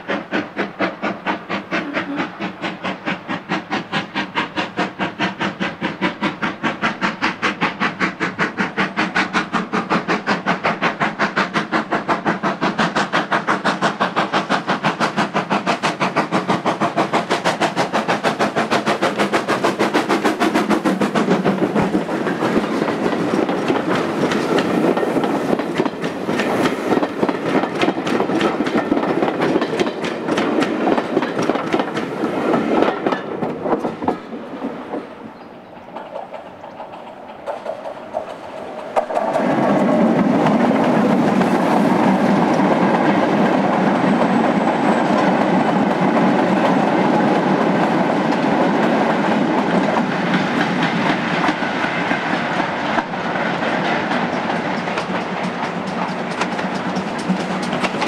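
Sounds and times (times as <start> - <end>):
steam locomotive exhaust beats: 0.0 - 58.0
wheels clattering over rail joints: 20.1 - 52.3, 53.0 - 58.0.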